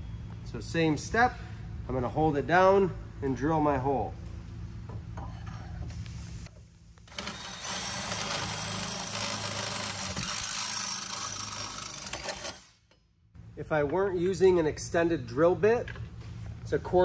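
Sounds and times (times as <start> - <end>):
cordless drill drilling metal: 7.1 - 12.8.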